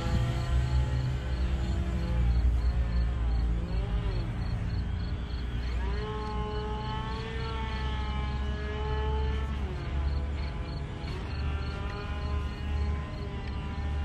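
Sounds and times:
electric model plane motor whining: 0.0 - 14.0.

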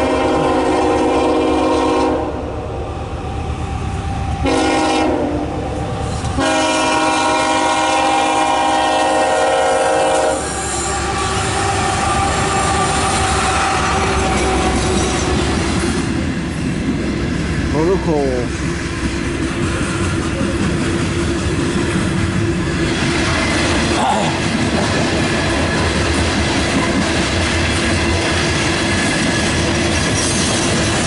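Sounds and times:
locomotive horn blasts: 0.0 - 2.4, 4.4 - 5.6, 6.4 - 14.9
train rumbling past on rails: 0.0 - 31.0.

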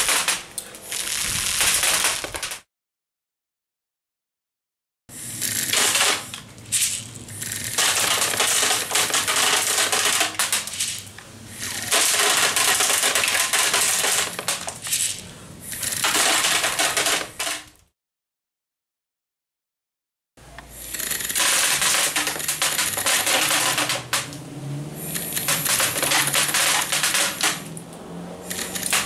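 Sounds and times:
plastic pellets clattering on foil: 0.0 - 2.6, 5.5 - 15.2, 15.8 - 17.8, 20.9 - 24.3, 25.3 - 27.6.

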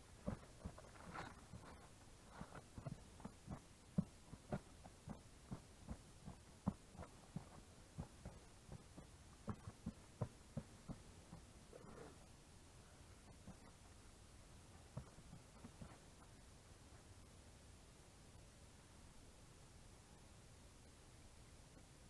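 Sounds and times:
boots stepping on soil and rock: 0.0 - 11.4.

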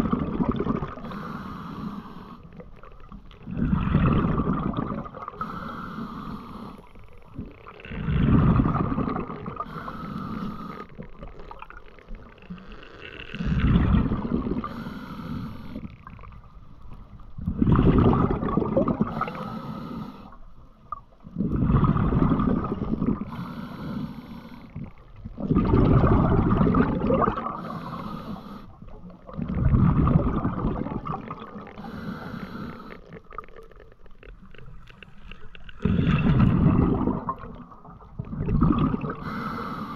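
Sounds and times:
exhaled bubbles rushing: 0.0 - 1.1, 2.7 - 5.5, 7.3 - 9.8, 13.3 - 14.8, 17.3 - 19.4, 21.2 - 23.4, 24.7 - 27.8, 28.9 - 32.0, 35.6 - 39.3
regulator inhalation hiss: 1.0 - 2.5, 5.4 - 6.9, 9.7 - 11.0, 14.6 - 15.9, 19.1 - 20.4, 23.3 - 24.7, 27.6 - 28.8, 31.8 - 33.1, 39.2 - 39.9.

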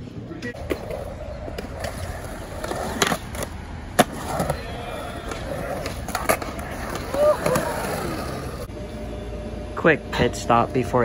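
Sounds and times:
skateboard wheels rolling on concrete: 0.0 - 8.7.

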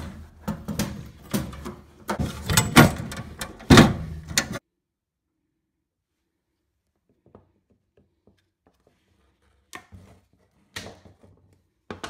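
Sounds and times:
plastic and metal clunks and scrapes: 0.0 - 4.6.

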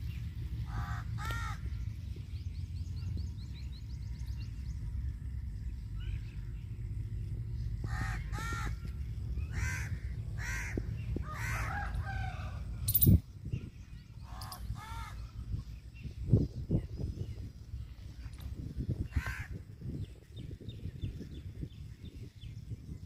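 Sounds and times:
low rumble: 0.0 - 23.0
harsh bird caws: 0.6 - 1.8, 7.8 - 13.0, 14.3 - 15.4, 19.1 - 19.6.

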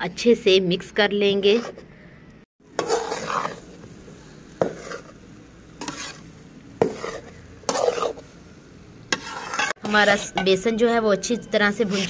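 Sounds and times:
metal spatula scraping a pan: 1.3 - 1.8, 2.7 - 3.9, 4.6 - 8.3, 9.1 - 12.0
flour sizzling in oil: 2.6 - 10.4.

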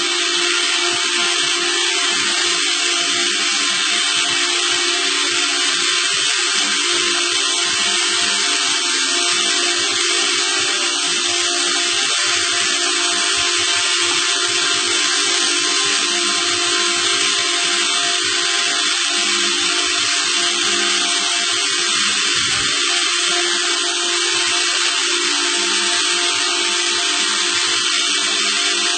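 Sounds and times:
machine motor whirring: 0.0 - 28.9.

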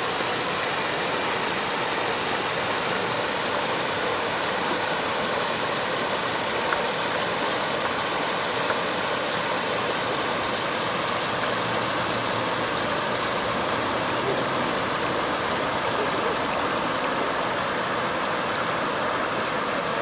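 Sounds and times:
small waterfall rushing: 0.0 - 20.0.

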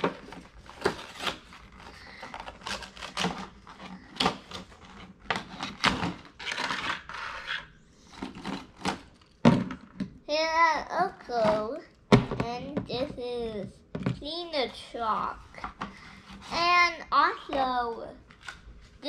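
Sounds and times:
plastic packaging tearing: 0.0 - 9.3.

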